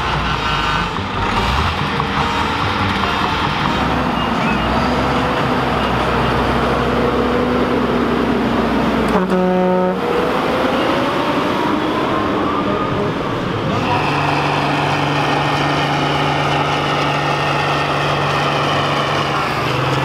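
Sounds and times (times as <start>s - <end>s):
engine revving: 0.0s - 20.0s
tractor diesel engines running: 0.0s - 20.0s
horn: 9.1s - 10.2s.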